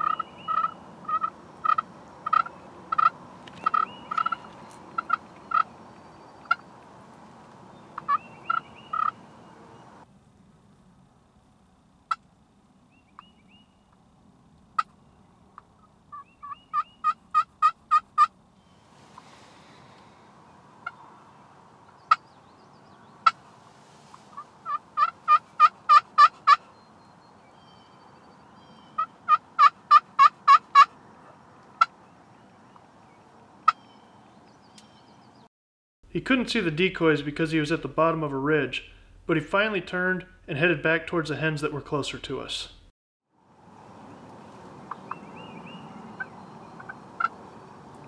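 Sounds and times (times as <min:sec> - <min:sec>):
turkey call clucks: 0:00.0 - 0:05.7, 0:06.4 - 0:06.6, 0:08.0 - 0:09.3, 0:15.6 - 0:18.3, 0:22.0 - 0:22.2, 0:24.3 - 0:26.7, 0:29.0 - 0:32.0, 0:44.9 - 0:47.4
turkey call yelps: 0:00.0 - 0:05.7, 0:06.4 - 0:06.6, 0:08.0 - 0:09.3, 0:16.1 - 0:18.3, 0:24.3 - 0:26.7, 0:28.8 - 0:31.9, 0:44.9 - 0:47.4.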